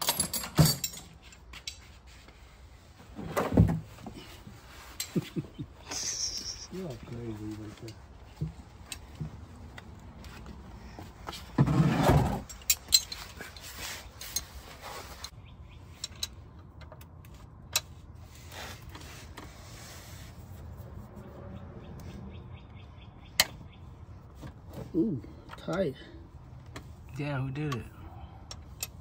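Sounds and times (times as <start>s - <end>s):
wrench clinking: 12.4s - 14.5s.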